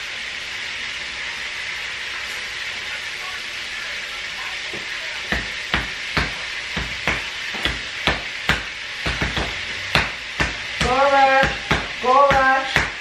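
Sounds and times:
steady hiss: 0.0 - 13.0
knife chopping on cutting board: 5.3 - 13.0.

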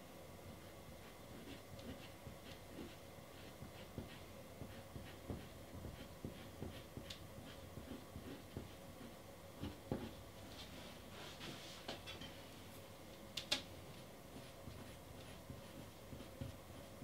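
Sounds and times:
low steady hum: 0.0 - 17.0
pastel stick scratching paper: 0.6 - 10.1.

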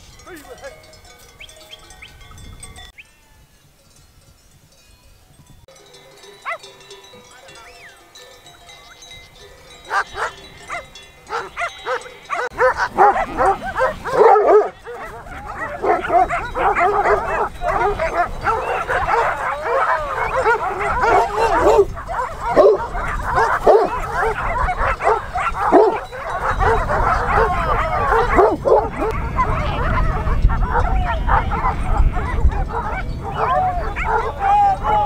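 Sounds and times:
dogs barking: 6.1 - 6.7, 9.8 - 35.0.

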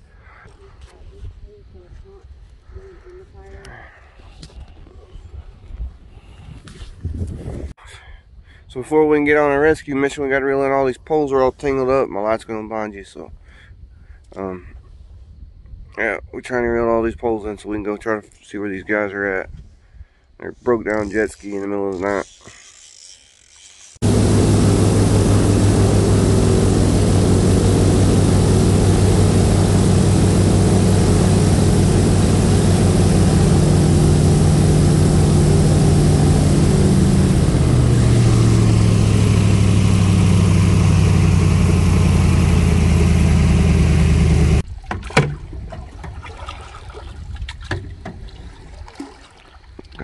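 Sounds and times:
water sounds: 24.0 - 40.0, 44.1 - 50.0
airboat engine and propeller: 24.0 - 44.6.

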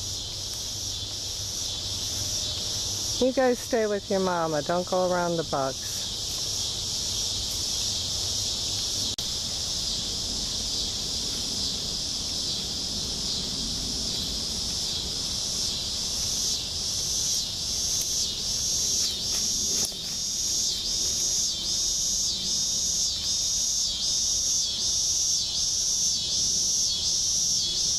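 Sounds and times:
high-pitched insect trill: 0.0 - 27.9
pulsing insect call: 0.0 - 27.9.

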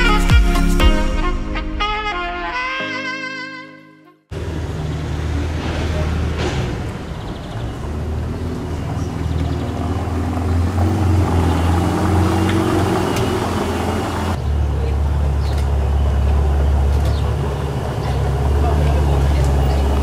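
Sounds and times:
car engine low drone: 4.3 - 20.0.

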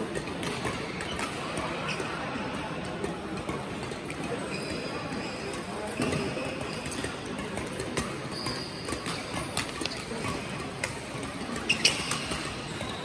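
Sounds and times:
sports hall background noise: 0.0 - 13.0
racket striking shuttlecock: 0.1 - 1.8, 5.5 - 12.9.

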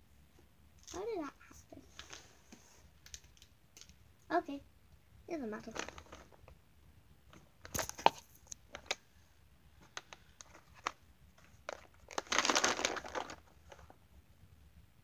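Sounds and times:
rustling and crinkling: 0.3 - 4.0, 5.4 - 6.6, 7.2 - 9.1, 9.7 - 14.2.

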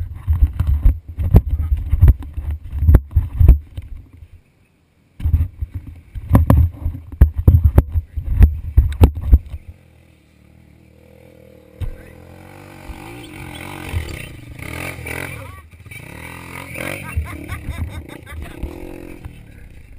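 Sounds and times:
dirt bike engine under load: 11.5 - 19.9.

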